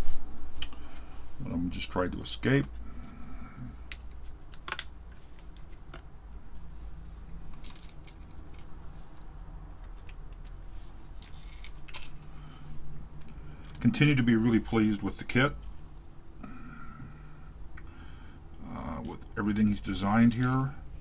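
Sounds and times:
low steady hum: 0.0 - 21.0
small plastic parts clicking: 3.9 - 6.6, 7.5 - 12.3.

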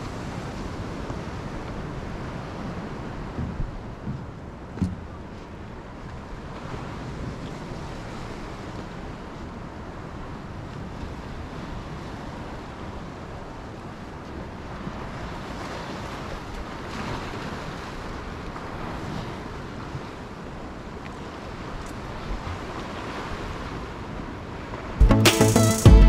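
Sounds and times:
wind rumbling on microphone: 0.0 - 25.0
waves breaking on beach: 0.0 - 25.6.

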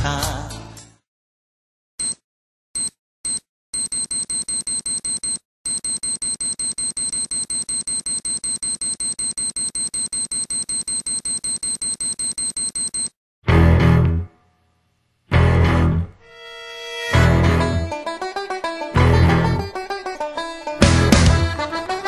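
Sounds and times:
alarm clock beeping: 2.8 - 13.1.

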